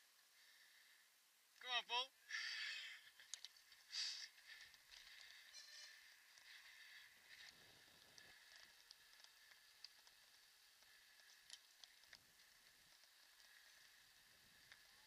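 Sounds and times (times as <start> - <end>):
faint steady hiss: 0.0 - 15.0
small clicks: 3.2 - 5.5, 7.4 - 14.0.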